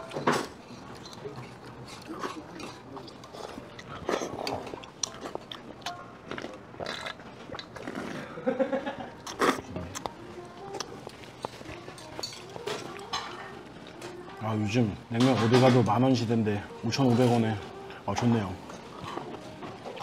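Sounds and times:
chewing: 0:00.0 - 0:08.4, 0:09.2 - 0:14.4, 0:18.7 - 0:20.0.

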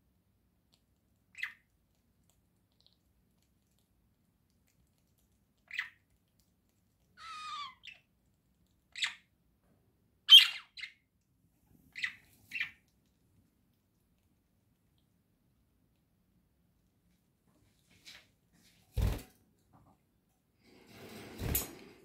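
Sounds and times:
budgerigar squawks: 0:07.2 - 0:08.0
budgerigar warbling call: 0:07.2 - 0:08.0.

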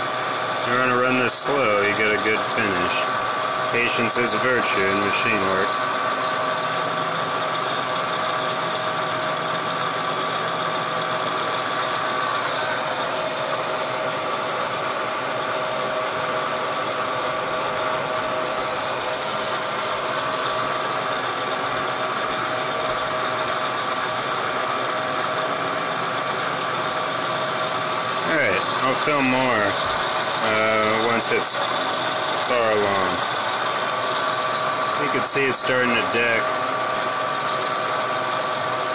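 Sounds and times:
milling machine whine: 0:00.0 - 0:38.9
cutter chatter: 0:28.1 - 0:33.3, 0:34.8 - 0:36.6.

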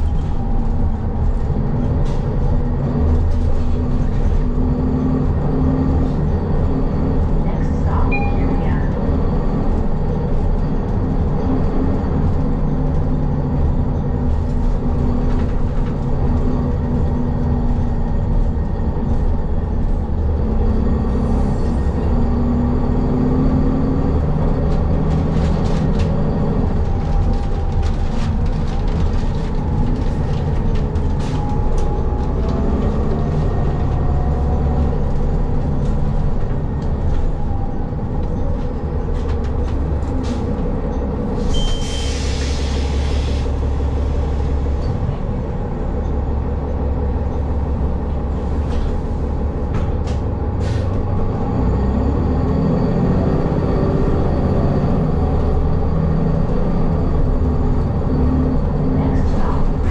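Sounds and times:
bus engine and road rumble: 0:00.0 - 0:59.9
rattles and clicks: 0:24.6 - 0:41.2.

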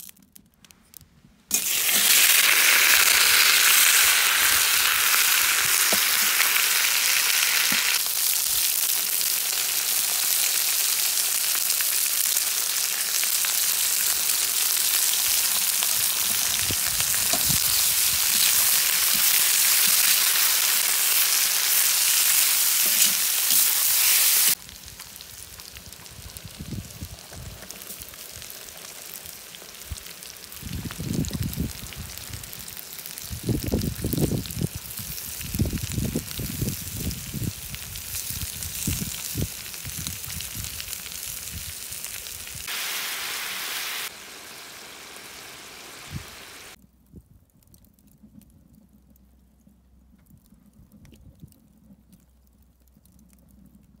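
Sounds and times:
meat frying in oil: 0:01.5 - 0:46.8
faint crackling and ticking: 0:24.5 - 0:33.8, 0:46.8 - 0:54.0.

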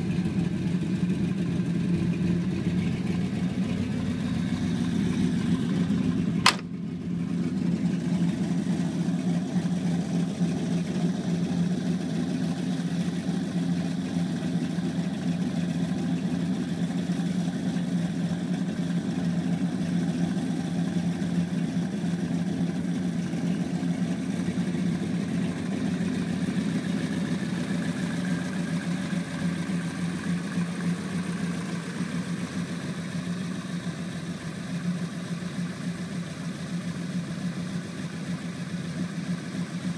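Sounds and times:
car engine idling: 0:00.0 - 0:39.9
sharp bang: 0:06.4 - 0:06.8.

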